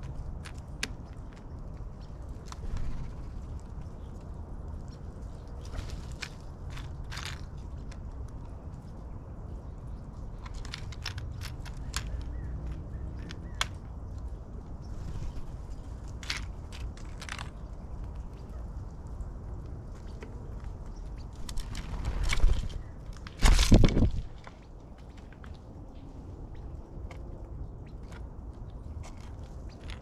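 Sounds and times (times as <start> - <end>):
bird bill tapping on wood: 10.4 - 14.0.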